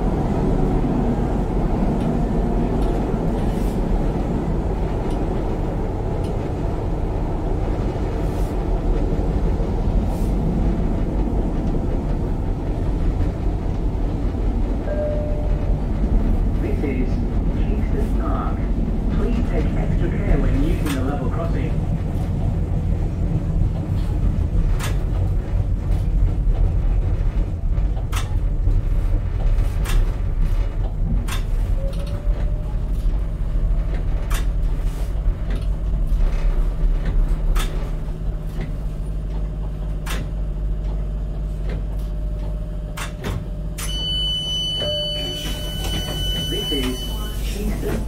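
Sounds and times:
train rumbling over track: 0:00.0 - 0:48.0
wheels clicking over rail joints: 0:23.6 - 0:43.2
door warning beep: 0:43.8 - 0:47.9.

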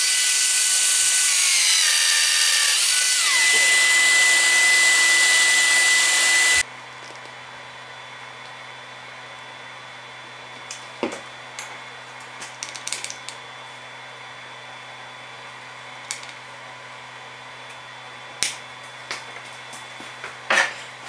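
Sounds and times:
steady machine hum: 0:00.0 - 0:12.4.

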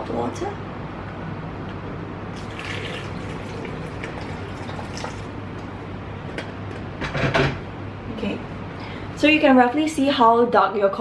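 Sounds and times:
steady low hum: 0:00.0 - 0:11.0
hot water pouring and splashing: 0:02.4 - 0:05.4.

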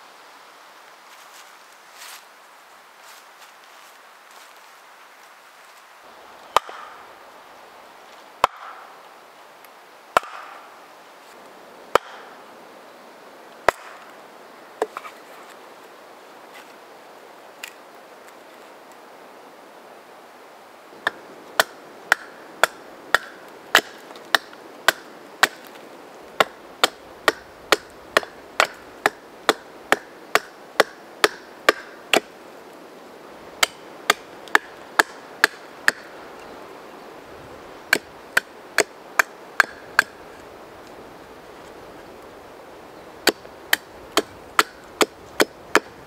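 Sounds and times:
hand axe chopping wood: 0:10.2 - 0:10.6, 0:21.0 - 0:25.7, 0:26.4 - 0:32.3, 0:33.6 - 0:36.1, 0:37.9 - 0:40.2, 0:43.2 - 0:45.9.

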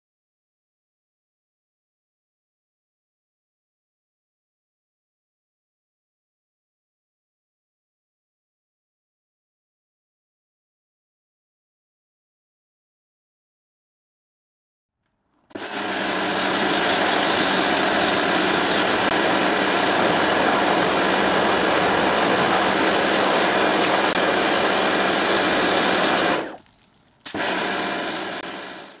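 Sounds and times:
pressure washer motor hum: 0:15.4 - 0:29.0
pressure washer spray hiss: 0:15.5 - 0:26.6, 0:27.2 - 0:29.0.

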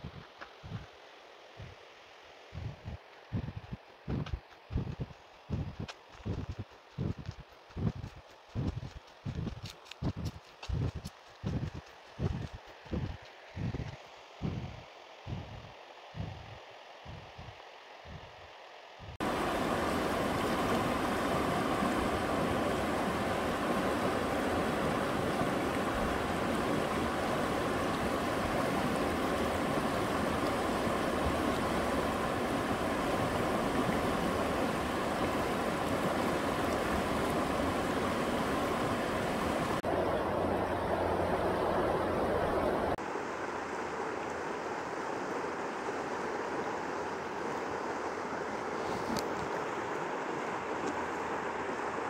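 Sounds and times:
stream rushing over rocks: 0:19.2 - 0:52.0.

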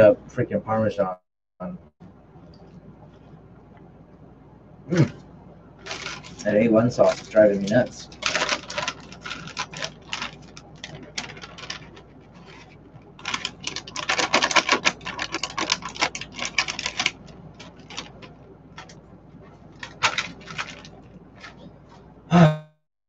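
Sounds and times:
plastic bag crinkling: 0:05.8 - 0:19.0, 0:19.6 - 0:21.7.

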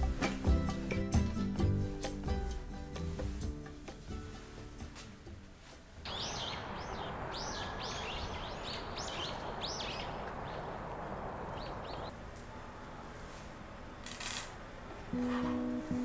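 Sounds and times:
outdoor background hiss: 0:00.0 - 0:16.0
small birds chirping: 0:06.1 - 0:12.2.

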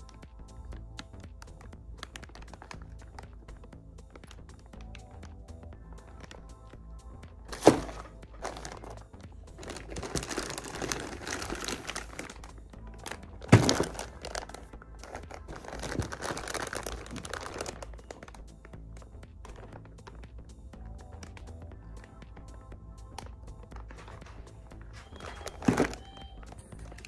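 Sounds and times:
background music: 0:00.0 - 0:27.0
plastic bags crinkling: 0:02.0 - 0:03.3, 0:07.5 - 0:09.0, 0:09.6 - 0:18.5, 0:23.8 - 0:27.0.

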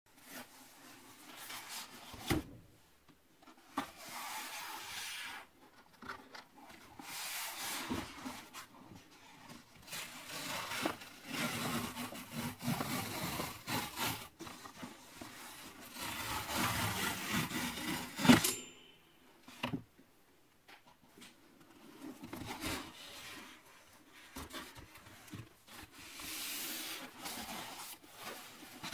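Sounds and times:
cardboard tearing: 0:09.9 - 0:14.4.

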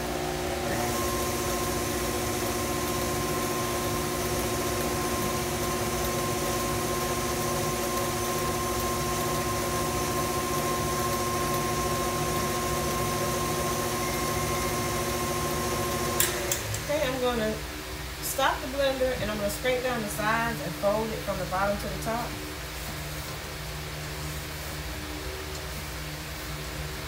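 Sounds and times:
stand mixer motor humming: 0:00.0 - 0:16.9.

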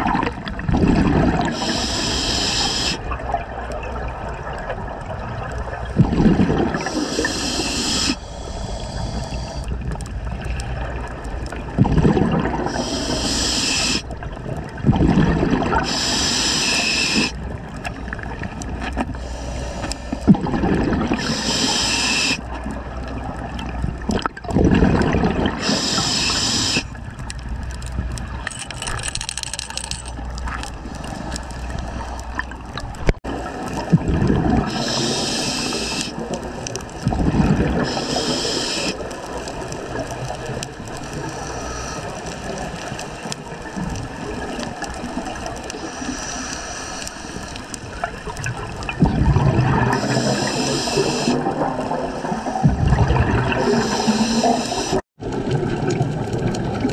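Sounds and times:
bubbling exhaled air: 0:00.0 - 0:03.4, 0:05.9 - 0:27.0, 0:28.7 - 0:56.9
hissing regulator inhalation: 0:01.5 - 0:03.0, 0:06.8 - 0:09.7, 0:12.7 - 0:14.1, 0:15.8 - 0:17.4, 0:19.1 - 0:20.3, 0:21.1 - 0:22.4, 0:25.6 - 0:27.0, 0:34.6 - 0:36.3, 0:37.8 - 0:39.1, 0:41.0 - 0:43.4, 0:45.7 - 0:47.8, 0:49.9 - 0:52.7, 0:53.5 - 0:55.1.

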